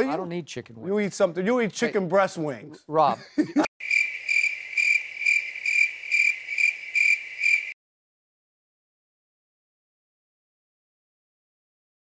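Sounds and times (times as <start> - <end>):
cricket chirping trill: 3.8 - 7.8.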